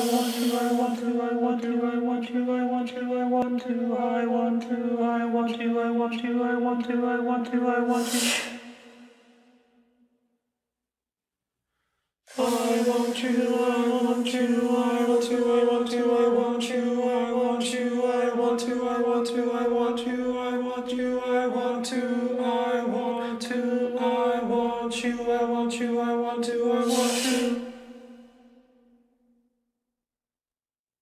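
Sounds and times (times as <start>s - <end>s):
a cappella choir singing a chord: 0.0s - 9.3s, 12.3s - 28.3s.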